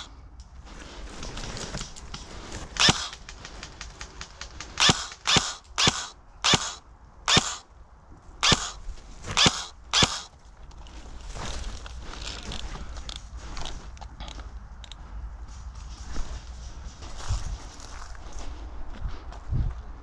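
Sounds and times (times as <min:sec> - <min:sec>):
airsoft rifle shots: 0:02.7 - 0:07.7, 0:08.4 - 0:10.3.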